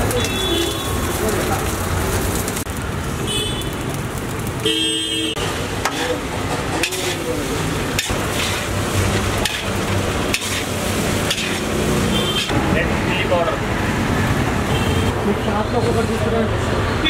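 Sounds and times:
food sizzling: 0:00.0 - 0:14.8
street traffic: 0:00.0 - 0:17.0
vehicle horn honking: 0:00.1 - 0:01.0, 0:04.7 - 0:05.4, 0:12.0 - 0:12.5
metal spatula scraping wok: 0:05.8 - 0:12.6.

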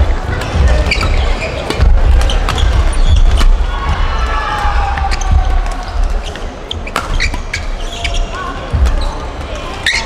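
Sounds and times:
shoe squeaks on court floor: 0:00.8 - 0:03.5, 0:06.2 - 0:08.4, 0:09.8 - 0:10.0
rackets striking shuttlecock: 0:06.7 - 0:07.8.

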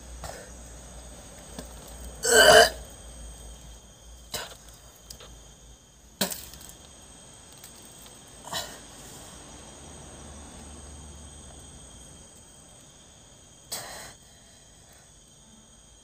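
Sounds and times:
person belching: 0:02.2 - 0:02.8.

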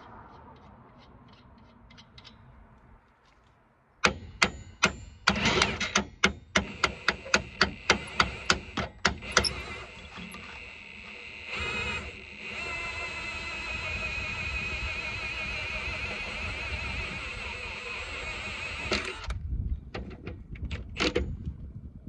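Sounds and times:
hammer striking steel: 0:04.0 - 0:06.4.

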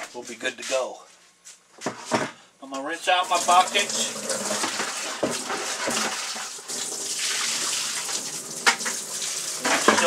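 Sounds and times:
water running from tap: 0:03.2 - 0:10.0
bucket knocks: 0:04.5 - 0:06.3.

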